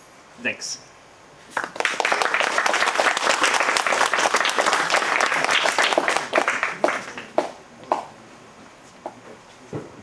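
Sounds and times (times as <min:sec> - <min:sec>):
audience applauding: 0:01.5 - 0:08.1.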